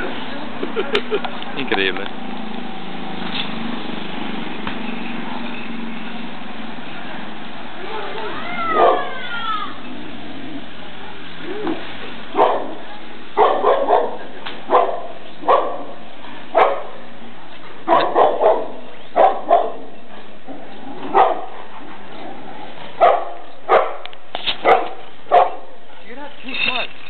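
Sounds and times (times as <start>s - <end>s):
dog barking: 8.7s - 9.1s, 12.3s - 12.8s, 13.4s - 17.0s, 17.9s - 19.9s, 21.1s - 21.5s, 23.0s - 25.8s.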